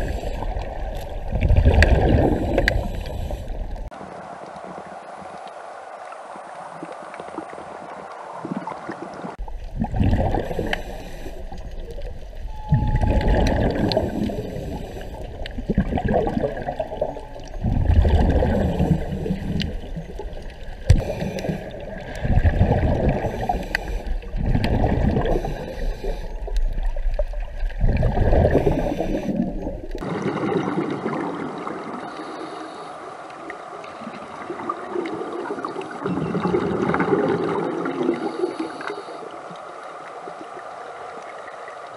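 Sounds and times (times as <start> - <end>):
underwater regulator bubbling: 0.0 - 3.9, 9.4 - 31.9
steady underwater noise: 0.0 - 41.9.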